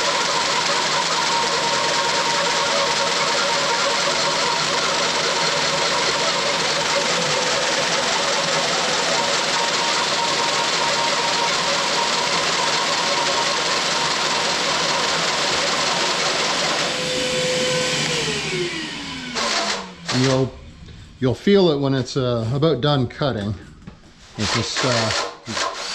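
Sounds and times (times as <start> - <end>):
cordless drill turning a cutter: 0.0 - 20.6, 24.4 - 25.9
shop vacuum whining: 0.0 - 25.9.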